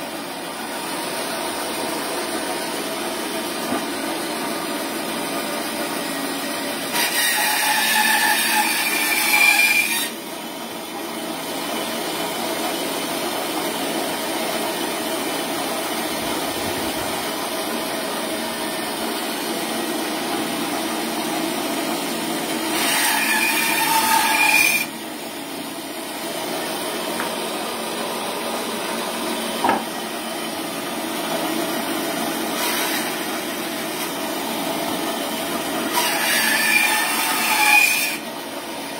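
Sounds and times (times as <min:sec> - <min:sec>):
bandsaw cutting bone: 0:06.0 - 0:10.2, 0:19.2 - 0:25.0, 0:31.2 - 0:38.3.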